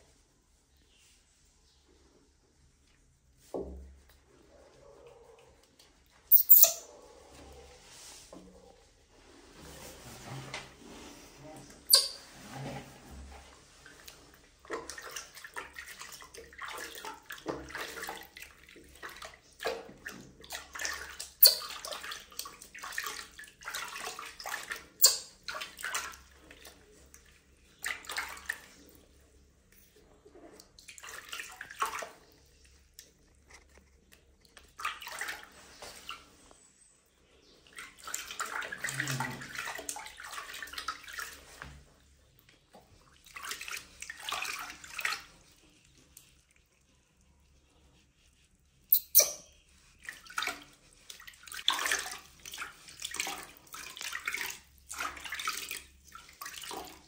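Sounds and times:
water splashing in a tub: 0:09.6 - 0:36.4, 0:37.4 - 0:48.1, 0:49.5 - 0:57.0.

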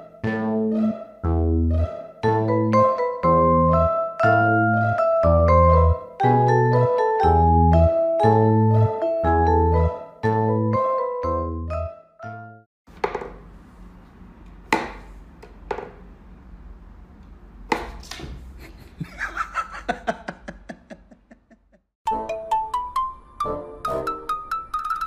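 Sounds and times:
mallet percussion music: 0:02.3 - 0:11.9
sharp wooden knocks: 0:12.9 - 0:13.4, 0:14.7 - 0:16.0, 0:17.7 - 0:18.2.

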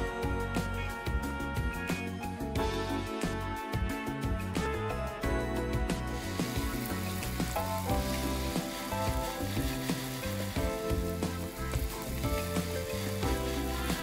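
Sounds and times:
background music: 0:00.0 - 0:14.0
salt sprinkling on vegetables: 0:06.2 - 0:14.0.

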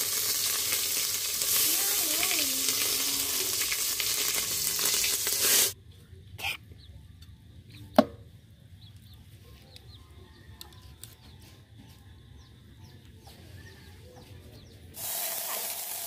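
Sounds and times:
steady sizzling hiss: 0:00.0 - 0:05.8, 0:15.0 - 0:16.0.

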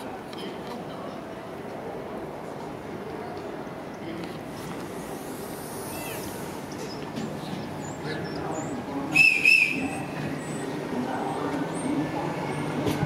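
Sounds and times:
high-pitched train horn whistle: 0:09.2 - 0:09.9.

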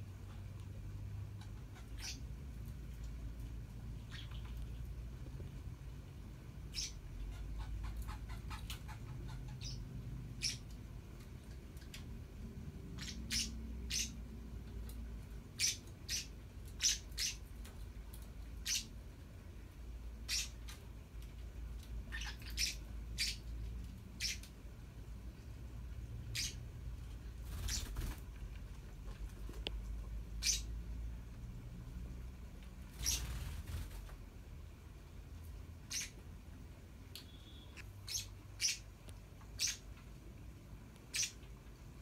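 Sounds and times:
parakeets chirping: 0:01.3 - 0:02.9, 0:03.8 - 0:05.0, 0:06.6 - 0:12.1, 0:12.8 - 0:17.8, 0:18.5 - 0:19.0, 0:20.1 - 0:20.8, 0:21.9 - 0:24.6, 0:26.0 - 0:28.2, 0:30.3 - 0:31.0, 0:32.8 - 0:34.0, 0:35.8 - 0:36.3, 0:37.2 - 0:38.9, 0:39.5 - 0:40.0, 0:41.0 - 0:41.5.

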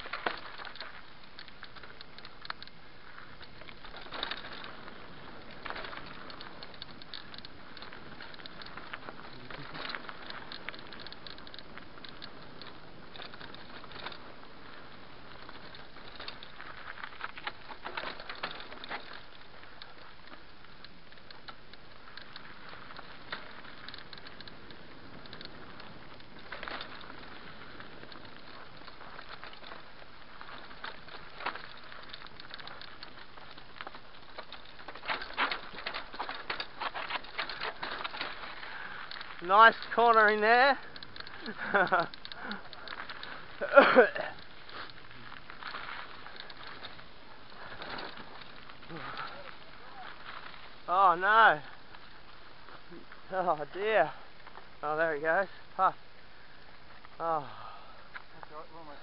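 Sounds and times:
bike rattling: 0:00.0 - 0:59.0
bike tyres crackling over stones: 0:00.0 - 0:59.0.

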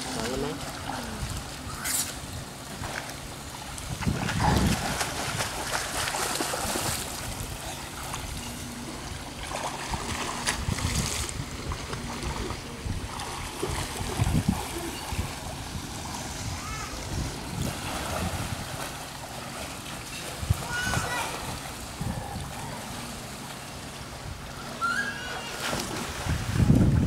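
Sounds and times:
pool water splashing: 0:00.0 - 0:27.0
wind rumbling on microphone: 0:03.6 - 0:19.1, 0:20.2 - 0:22.9, 0:25.7 - 0:27.0.

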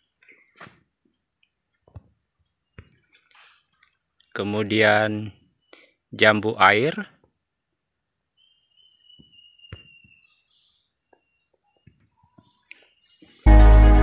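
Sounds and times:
insect chorus shrilling: 0:00.0 - 0:13.5
thin faint whistle: 0:08.3 - 0:10.4.

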